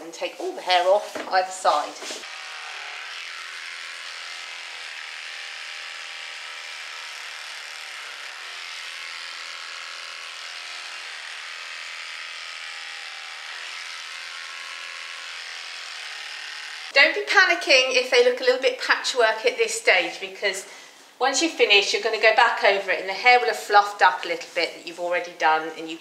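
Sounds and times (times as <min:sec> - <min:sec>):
electric clippers running: 0:02.0 - 0:17.2.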